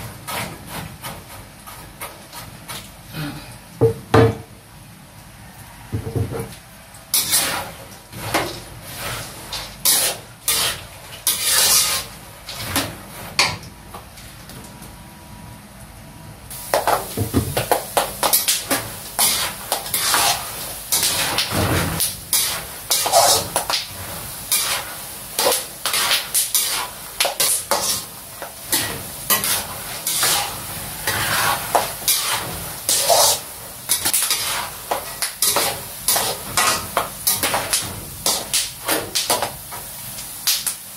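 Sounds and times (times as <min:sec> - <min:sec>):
metal spatula scraping a wok: 0:07.1 - 0:13.6, 0:18.2 - 0:39.5
peanuts sizzling in oil: 0:07.1 - 0:14.1, 0:16.5 - 0:40.9.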